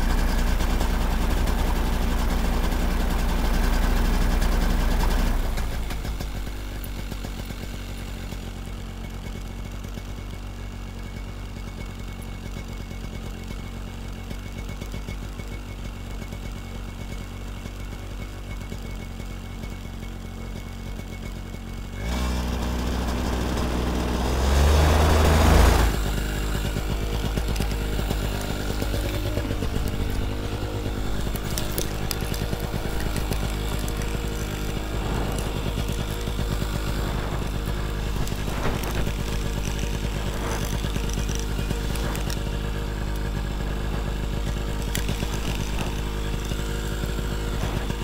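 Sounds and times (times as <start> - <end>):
paramotor engine running: 0.0 - 48.0
rush of propeller wind: 25.7 - 42.5.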